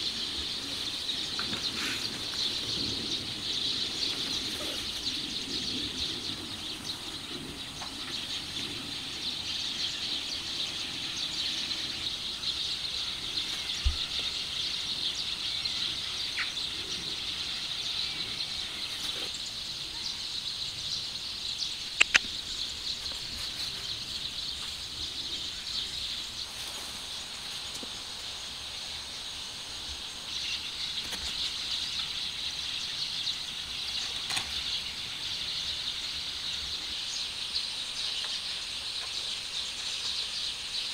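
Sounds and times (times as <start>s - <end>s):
sharp double click: 22.0s - 22.3s.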